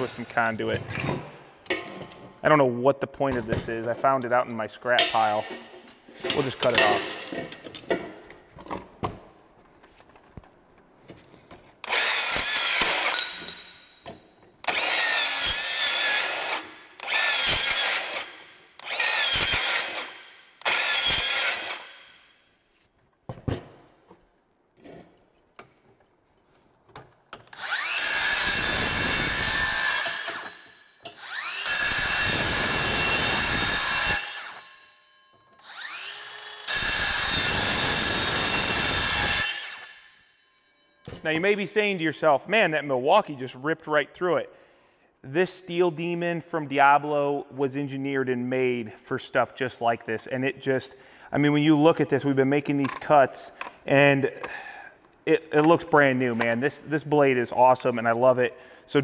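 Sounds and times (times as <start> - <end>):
circular saw cutting steel: 11.9 - 13.5, 14.7 - 22.2, 27.5 - 40.8.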